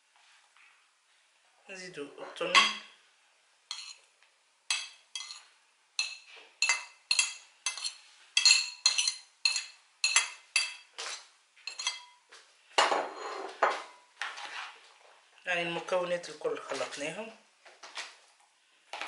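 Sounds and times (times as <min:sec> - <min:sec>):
metal spoon clinking on ceramic plate: 0:02.6 - 0:02.9, 0:03.7 - 0:04.0, 0:04.7 - 0:10.9, 0:11.7 - 0:12.2.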